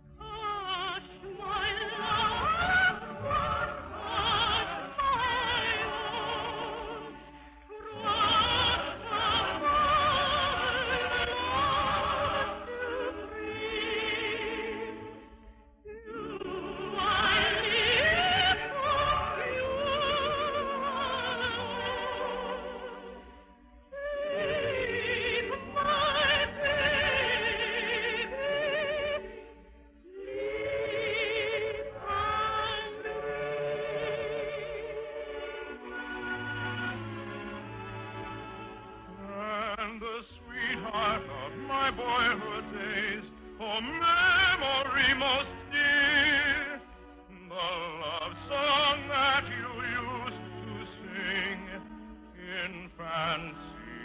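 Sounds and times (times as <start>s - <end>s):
operatic singing with vibrato: 0.0s - 54.0s
orchestral accompaniment: 0.0s - 54.0s.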